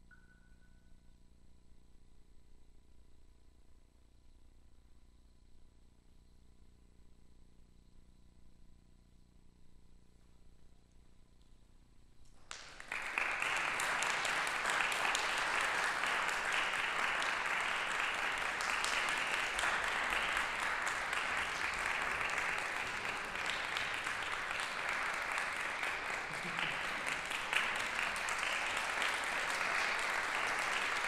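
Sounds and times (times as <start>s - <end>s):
audience applause: 12.5s - 31.0s.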